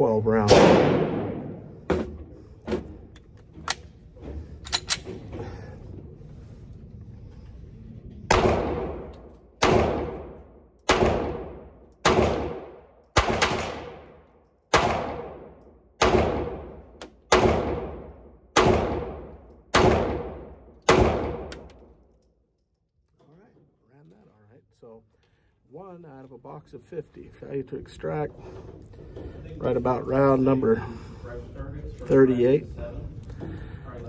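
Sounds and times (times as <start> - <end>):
pistol shots echoing indoors: 0.4 - 1.9, 8.3 - 22.3.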